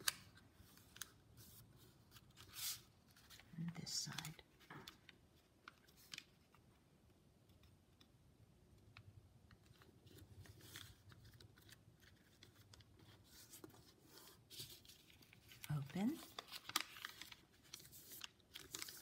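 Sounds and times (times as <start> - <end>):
paper rustling and scraping: 10.0 - 19.0.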